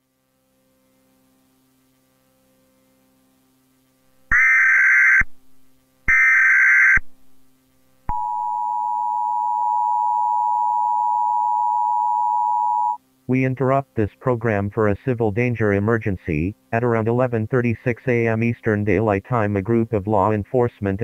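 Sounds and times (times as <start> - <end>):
faint low hum: 0.0 - 21.0
two-tone attention signal: 8.1 - 13.0.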